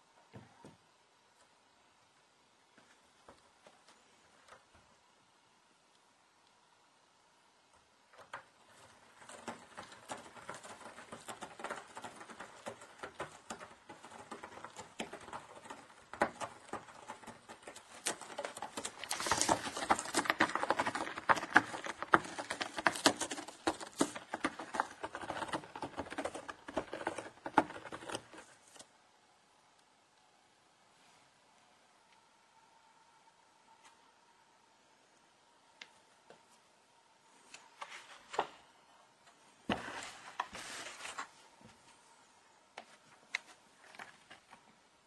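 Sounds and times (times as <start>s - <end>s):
cat claws scratching cardboard: 8.2s - 28.9s.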